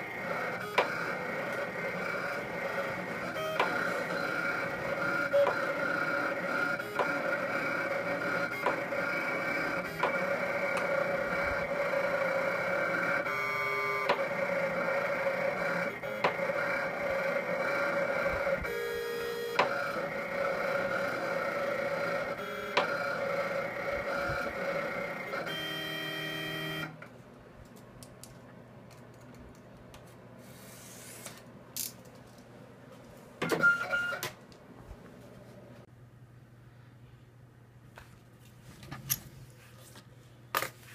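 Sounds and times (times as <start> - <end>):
vinyl cutter motors whining: 0.0 - 27.1.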